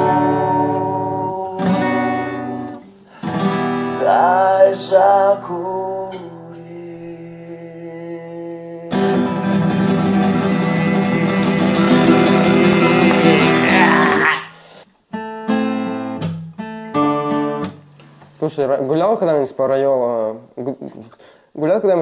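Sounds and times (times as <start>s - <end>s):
man singing wordless notes: 0.0s - 2.2s, 3.9s - 14.6s
acoustic guitar strumming: 0.0s - 6.6s, 8.9s - 14.4s, 15.1s - 18.3s.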